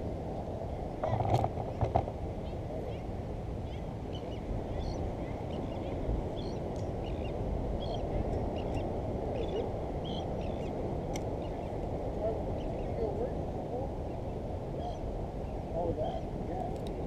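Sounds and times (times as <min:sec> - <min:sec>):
wind on microphone: 0:00.0 - 0:17.0
birds chirping and squawking: 0:03.6 - 0:10.8, 0:14.1 - 0:16.3.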